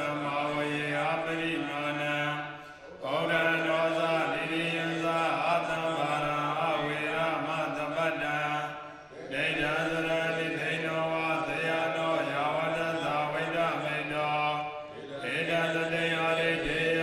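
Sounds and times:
men chanting: 0.0s - 17.0s.

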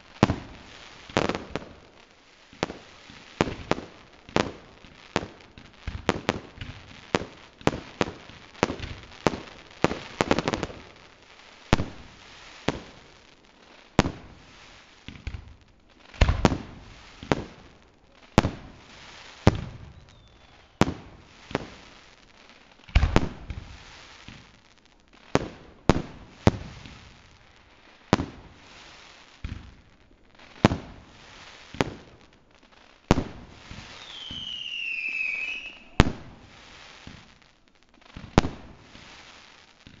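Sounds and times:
firework falling whistle: 19.9s - 20.8s, 33.7s - 36.5s
fireworks banging: 33.1s - 37.4s.

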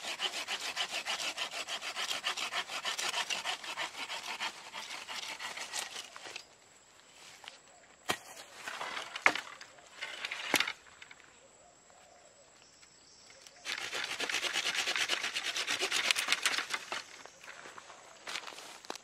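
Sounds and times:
saw rasping through grass roots: 0.0s - 6.5s, 13.6s - 17.2s.

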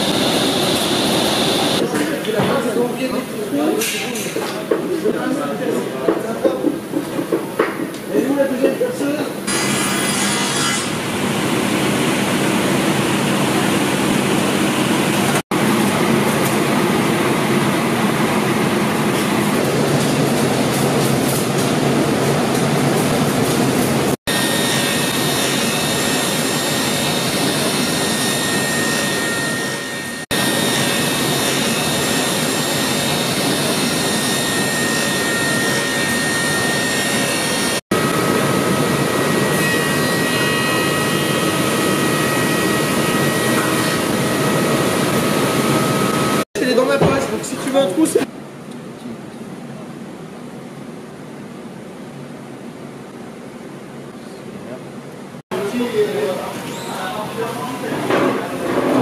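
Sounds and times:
high machine whine: 0.0s - 2.0s, 9.1s - 48.3s
woodworking machines running: 0.0s - 3.7s, 4.5s - 48.3s, 55.5s - 59.0s.

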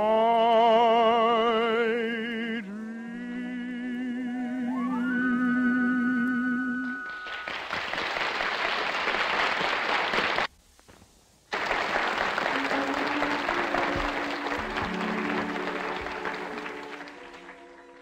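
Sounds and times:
audience applauding: 6.8s - 10.5s, 11.5s - 18.0s
orchestra music: 11.6s - 18.0s
song with orchestra: 12.2s - 18.0s.

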